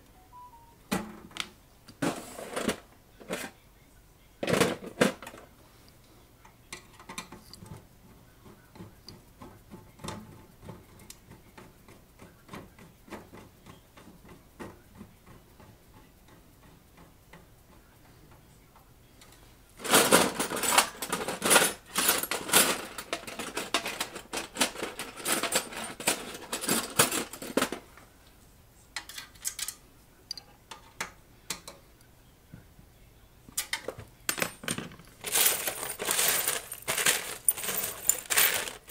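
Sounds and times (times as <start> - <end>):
metal screws and nuts rattling: 19.8 - 27.8, 33.6 - 38.9
small metal parts ticking: 35.0 - 38.9.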